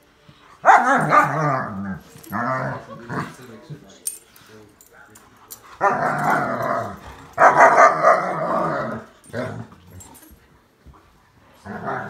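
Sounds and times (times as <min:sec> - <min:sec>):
dogs growling: 0:00.6 - 0:03.8, 0:05.2 - 0:10.6, 0:11.5 - 0:12.0.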